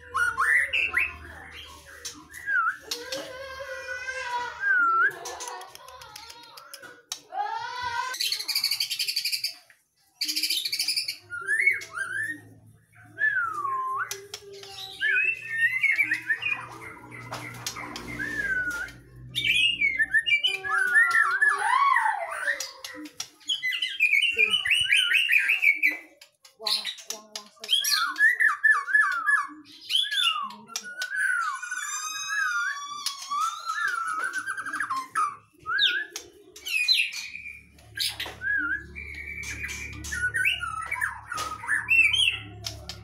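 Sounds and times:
bird singing whistles and trills: 0:10.2 - 0:21.7, 0:27.6 - 0:43.0.

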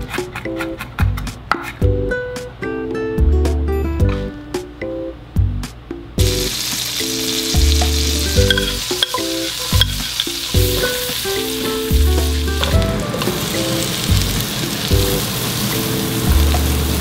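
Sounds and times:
light background music: 0:00.0 - 0:17.0
butter sizzling in a wok: 0:06.2 - 0:17.0
garlic and chili frying: 0:06.2 - 0:17.0
spatula stirring: 0:06.4 - 0:15.7.

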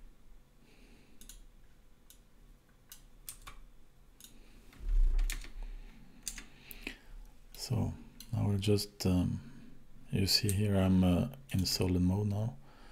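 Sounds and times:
computer mouse and keyboard clicks: 0:02.9 - 0:05.6, 0:06.2 - 0:06.5.

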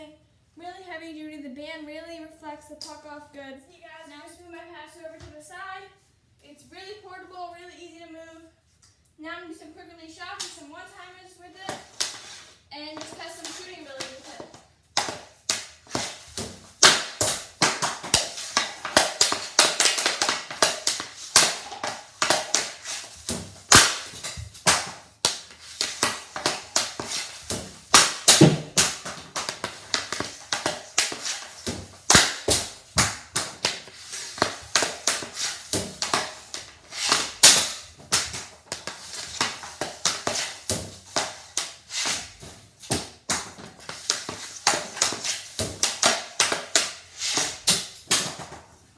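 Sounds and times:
hockey stick striking puck: 0:11.7 - 0:48.7
pucks rebounding off bungees: 0:15.0 - 0:48.6.

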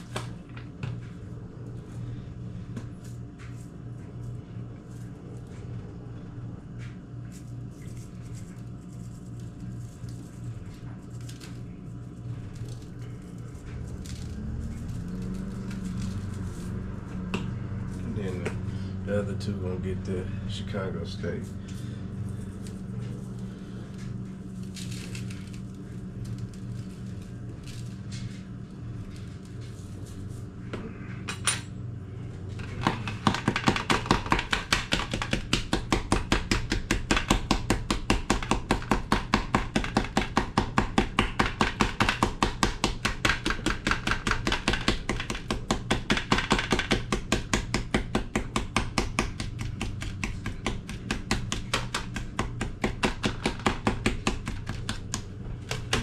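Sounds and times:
low hum: 0:00.0 - 0:33.2
knife chopping on cutting board: 0:32.8 - 0:56.0.

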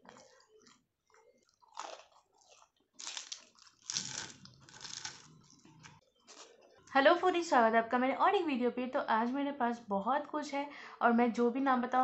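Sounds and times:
person crunching crisp food: 0:00.0 - 0:06.7.

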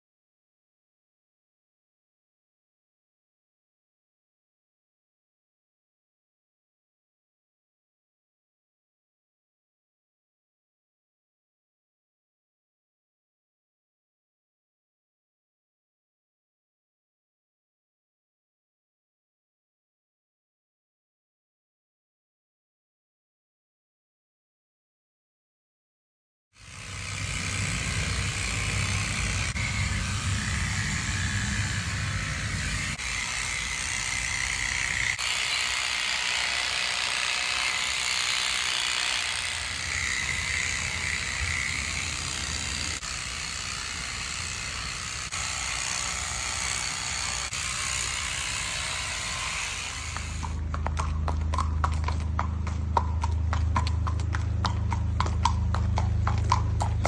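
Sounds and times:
low hum: 0:26.7 - 0:35.2, 0:39.5 - 0:57.0
horse hooves clip-clopping on concrete: 0:32.6 - 0:57.0.

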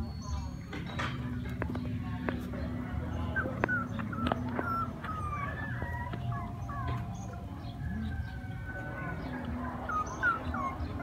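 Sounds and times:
puppy whimpering: 0:03.4 - 0:07.4, 0:09.5 - 0:11.0.

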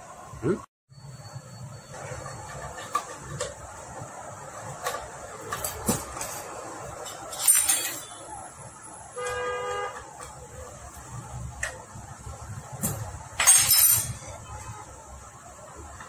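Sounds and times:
metallic clatter: 0:04.6 - 0:08.2, 0:12.7 - 0:14.6
hand tools clinking on metal: 0:05.5 - 0:08.2, 0:12.8 - 0:14.4
vehicle horn toot: 0:09.2 - 0:10.2.

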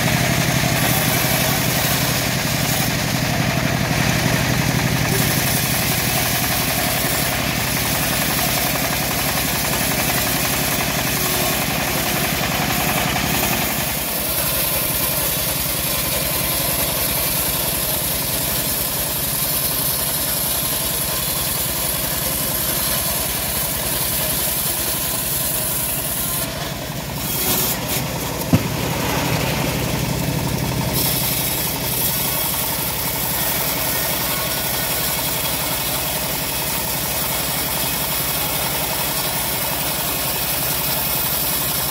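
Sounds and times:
bandsaw cutting a log: 0:00.0 - 0:41.9
sharp knock: 0:28.4 - 0:30.0.

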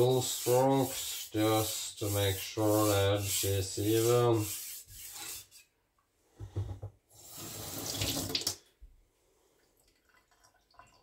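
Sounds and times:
soft knocks: 0:06.4 - 0:07.0
water rushing into sink: 0:07.2 - 0:08.6.

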